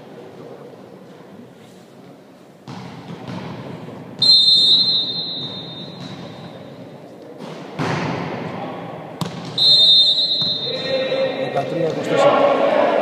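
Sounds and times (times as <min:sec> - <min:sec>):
sports hall ambient noise: 0:00.0 - 0:13.0
referee's whistle blast: 0:04.2 - 0:06.5, 0:09.6 - 0:11.1.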